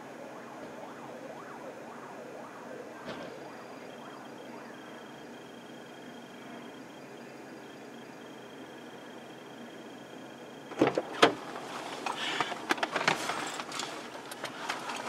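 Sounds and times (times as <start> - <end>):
clicks and rustling: 10.7 - 15.0.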